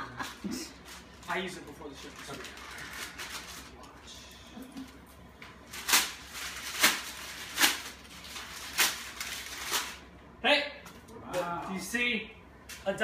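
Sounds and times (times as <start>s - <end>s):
paper bag tearing: 5.7s - 10.0s.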